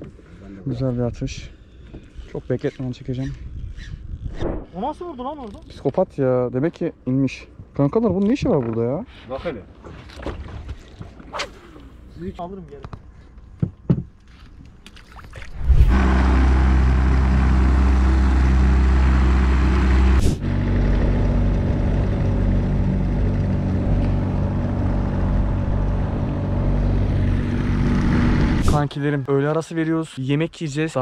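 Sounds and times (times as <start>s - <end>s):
boat motor humming: 15.6s - 28.8s.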